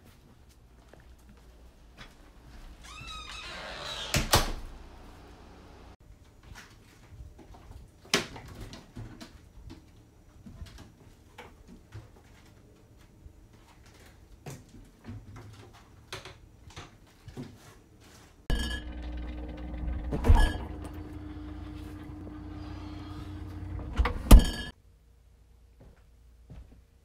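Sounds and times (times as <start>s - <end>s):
wooden cabinet doors opening and shutting: 2.9s - 5.0s, 19.0s - 24.7s.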